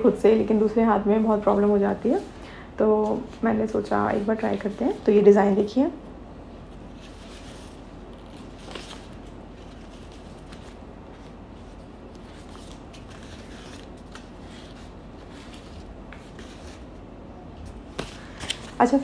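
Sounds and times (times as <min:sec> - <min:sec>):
low room hum: 0:00.0 - 0:19.0
paper sheets rustling: 0:03.0 - 0:05.7, 0:06.7 - 0:17.0, 0:17.6 - 0:19.0.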